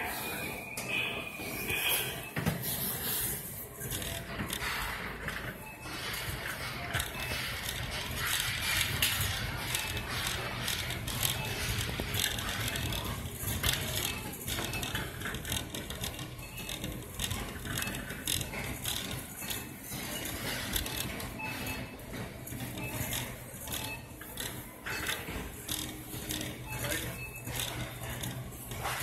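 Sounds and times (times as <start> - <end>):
shopping cart rattling: 2.6 - 29.0.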